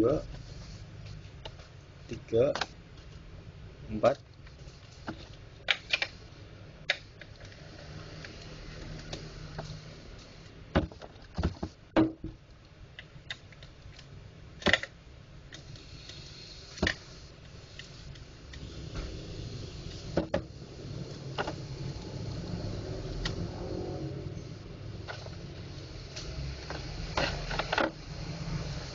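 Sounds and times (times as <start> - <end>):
low steady hum: 0.0 - 28.9
plastic parts clicking and knocking: 14.6 - 15.0.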